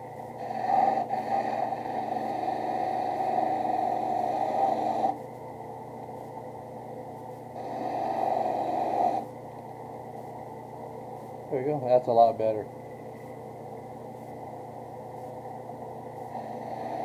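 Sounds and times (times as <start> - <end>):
drill press motor hum: 0.0 - 5.3.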